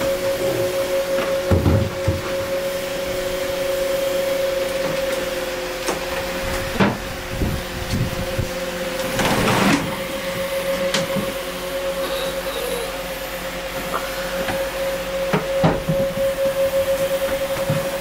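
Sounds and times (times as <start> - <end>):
mechanical hum: 0.0 - 18.0.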